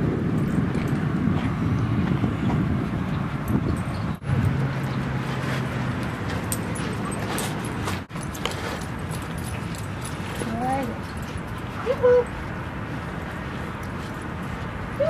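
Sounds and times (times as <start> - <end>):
wind rumbling on microphone: 0.0 - 15.0
light scuffing ticks: 13.2 - 14.8.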